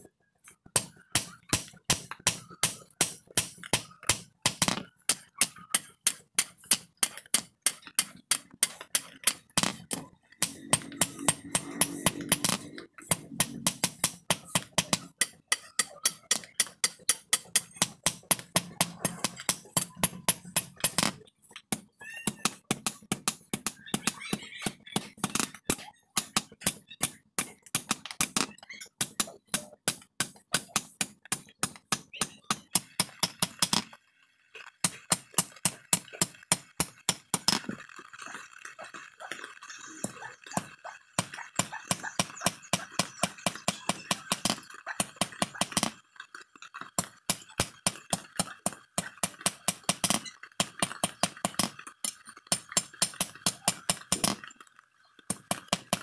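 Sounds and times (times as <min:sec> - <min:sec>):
hammer striking iron on anvil: 0:00.8 - 0:09.8, 0:10.4 - 0:21.1.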